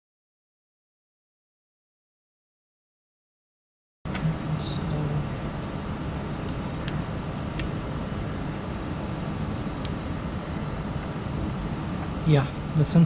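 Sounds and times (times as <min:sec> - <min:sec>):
steady background noise: 0:04.1 - 0:13.0.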